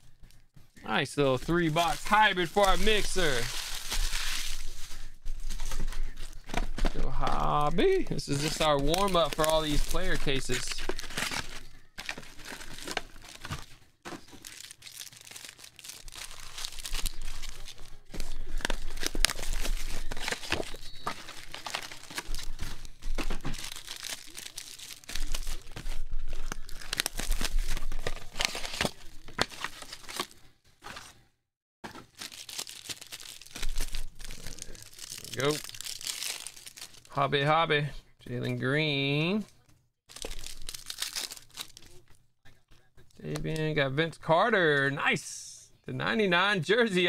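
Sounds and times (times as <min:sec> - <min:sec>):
foil packs crinkling and rustling: 0:01.3 - 0:31.1, 0:31.9 - 0:37.1, 0:40.1 - 0:42.2.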